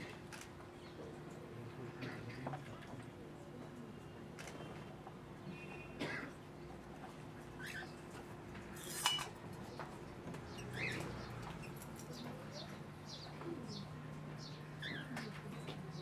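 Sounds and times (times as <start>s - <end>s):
birds chirping: 0.1s - 8.3s, 9.6s - 16.0s.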